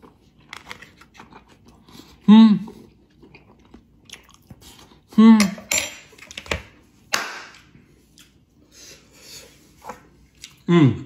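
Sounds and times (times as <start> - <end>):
man chewing: 0.0 - 5.4, 7.8 - 10.7
man humming mmm: 10.6 - 11.0.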